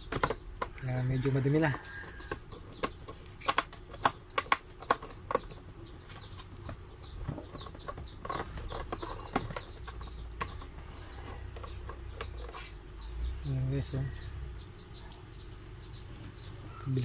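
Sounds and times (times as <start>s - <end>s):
handling plastic parts: 0.0s - 12.7s
bird chirping: 0.0s - 17.0s.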